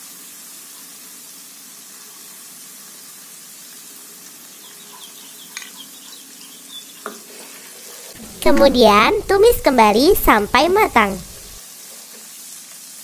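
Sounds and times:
chillies sizzling in hot oil: 0:00.0 - 0:08.2, 0:11.6 - 0:13.0.

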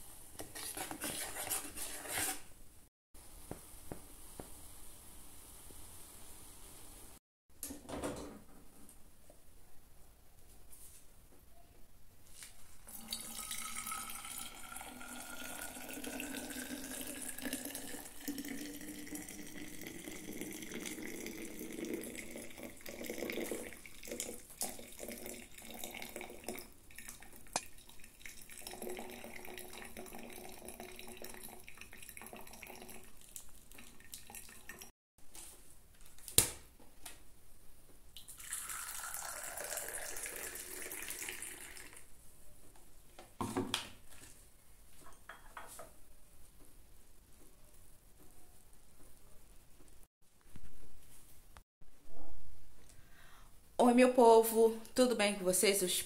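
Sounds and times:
coffee pouring into cup: 0:12.8 - 0:34.9, 0:38.2 - 0:42.1
coffee trickling into flask: 0:12.8 - 0:34.9, 0:38.2 - 0:42.1.

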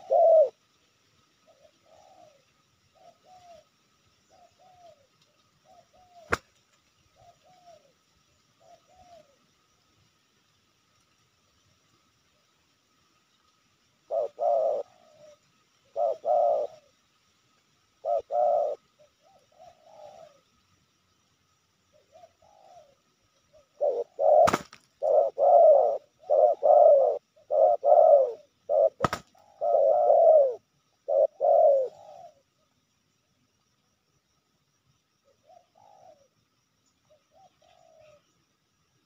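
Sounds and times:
dove cooing: 0:00.0 - 0:00.6, 0:01.5 - 0:06.5, 0:07.1 - 0:08.0, 0:08.6 - 0:09.5, 0:14.0 - 0:17.0, 0:18.0 - 0:20.5, 0:21.9 - 0:32.6, 0:35.2 - 0:36.4, 0:37.1 - 0:38.4.

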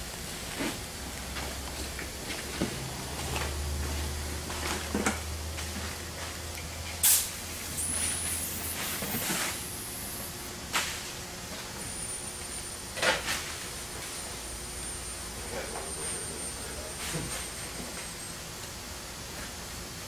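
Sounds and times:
sharp hissing bursts: 0:07.0 - 0:10.5.

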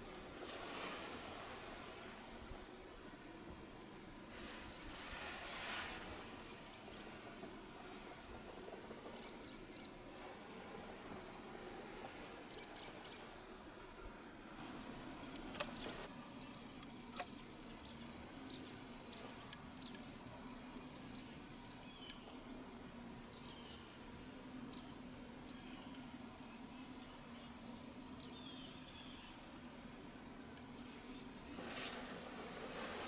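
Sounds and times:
faint low hum: 0:00.0 - 0:33.0
small birds chirping: 0:04.6 - 0:05.4, 0:06.3 - 0:08.0, 0:09.0 - 0:10.6, 0:11.7 - 0:13.5, 0:14.6 - 0:22.4, 0:23.1 - 0:29.4, 0:30.5 - 0:32.0.

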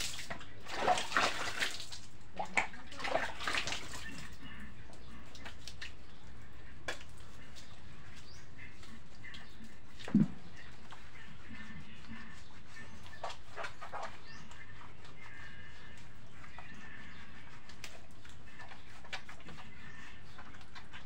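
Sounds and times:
water splashing onto wet floor: 0:00.0 - 0:04.1.

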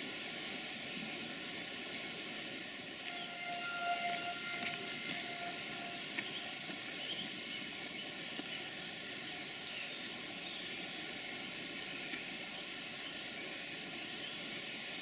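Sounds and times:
train running past: 0:02.0 - 0:09.1.

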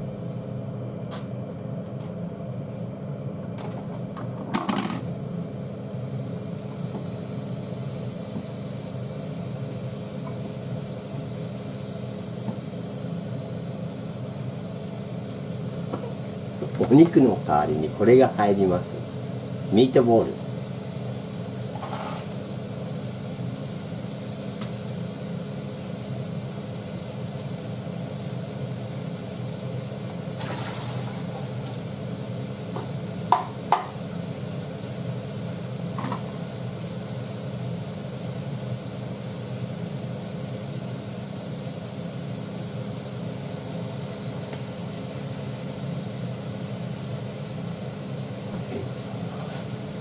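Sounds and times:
kitchen fan humming: 0:00.0 - 0:50.0.

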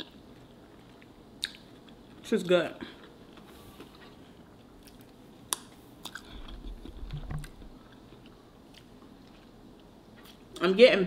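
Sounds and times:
person chewing crunchy chips: 0:03.0 - 0:10.6.

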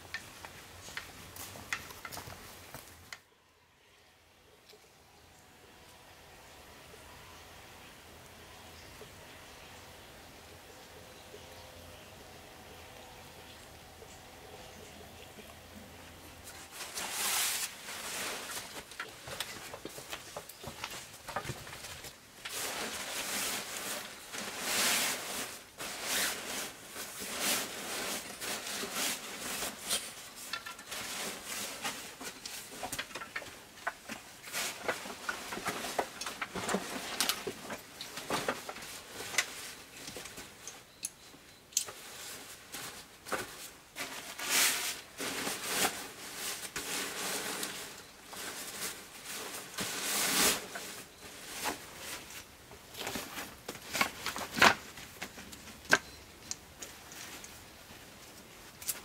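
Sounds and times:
cloth bags rustling: 0:16.5 - 0:40.6.

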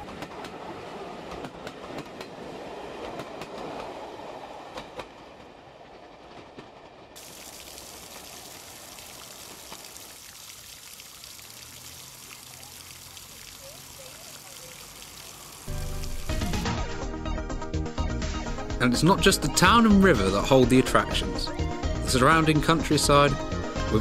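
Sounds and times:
train wheels clicking over rail joints: 0:00.0 - 0:04.0
fountain splashing: 0:07.2 - 0:16.8.

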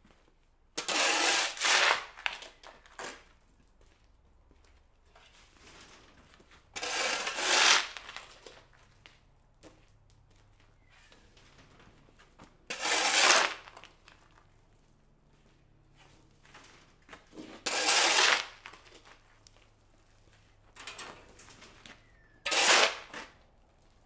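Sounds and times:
shovel scraping concrete: 0:00.8 - 0:03.3, 0:06.6 - 0:08.6, 0:12.7 - 0:14.0, 0:16.6 - 0:19.2, 0:21.7 - 0:23.4.

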